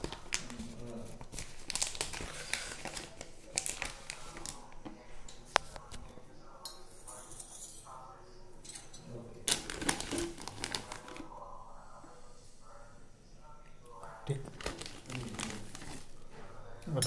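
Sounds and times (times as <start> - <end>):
plastic bag crinkling: 0.0 - 4.8, 9.4 - 11.4, 14.4 - 16.3.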